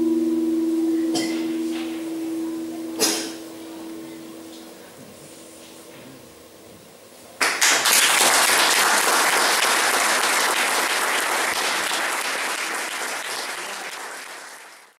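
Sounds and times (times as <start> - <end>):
solo guitar piece: 0.0 - 6.9
audience applauding: 7.4 - 15.0.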